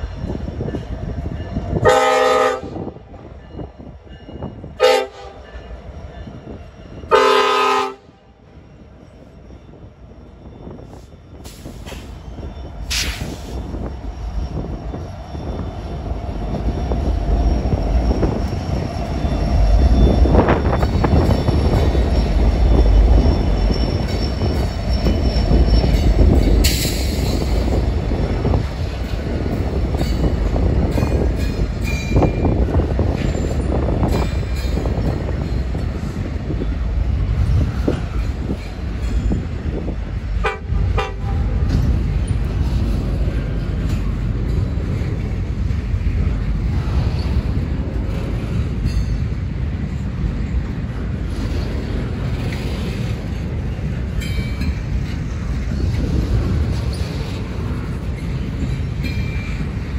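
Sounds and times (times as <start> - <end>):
train rumbling on rails: 0.0 - 59.9
locomotive horn blasts: 1.8 - 2.9, 4.8 - 5.4, 7.1 - 8.2, 40.4 - 41.6.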